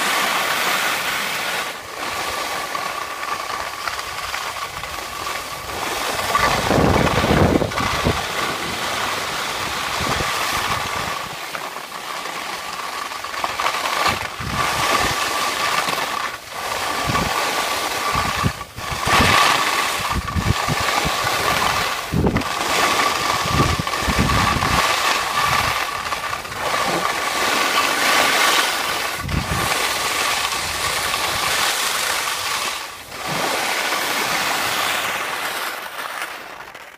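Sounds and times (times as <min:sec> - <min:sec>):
skis hissing over snow: 0:00.0 - 0:36.9
wind buffeting microphone: 0:04.0 - 0:11.4, 0:14.1 - 0:15.4, 0:16.6 - 0:34.8.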